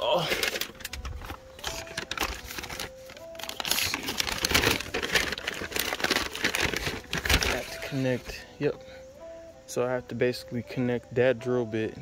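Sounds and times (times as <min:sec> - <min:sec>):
packaging crinkling and rustling: 0:00.0 - 0:08.4.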